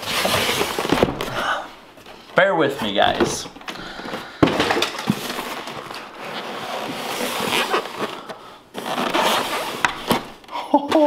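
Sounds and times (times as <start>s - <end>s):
foam packing scraping: 0.0s - 1.4s, 4.7s - 10.4s.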